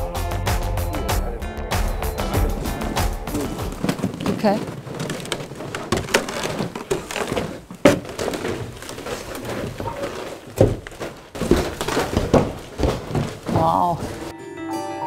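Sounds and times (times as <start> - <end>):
heavy thumps: 1.8 - 14.3
footsteps on wooden stairs: 2.3 - 14.3.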